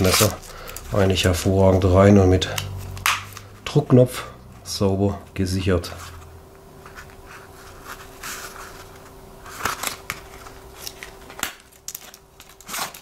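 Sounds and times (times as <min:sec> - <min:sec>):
faint steady hum: 0:00.0 - 0:13.0
fabric rubbing and rustling: 0:06.0 - 0:10.6.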